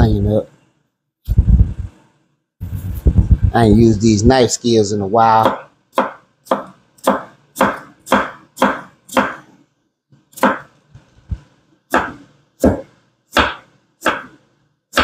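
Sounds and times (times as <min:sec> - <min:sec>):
knife chopping on wooden board: 0:05.4 - 0:09.6, 0:10.3 - 0:15.0.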